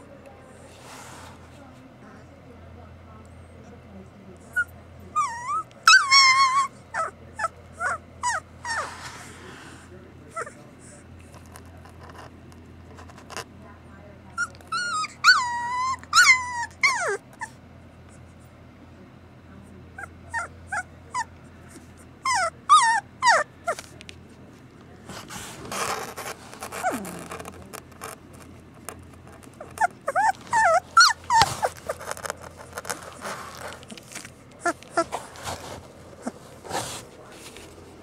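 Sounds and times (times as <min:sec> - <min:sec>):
puppy whimpering and whining: 0:04.5 - 0:09.3, 0:10.3 - 0:10.6, 0:14.3 - 0:17.6, 0:20.0 - 0:23.8, 0:25.8 - 0:28.2, 0:29.3 - 0:37.0
rustling: 0:08.6 - 0:09.9, 0:23.7 - 0:38.0.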